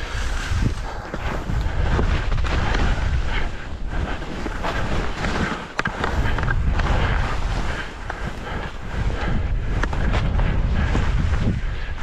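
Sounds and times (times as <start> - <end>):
skis scraping on snow: 0.0 - 12.0
wind buffeting microphone: 0.0 - 12.0.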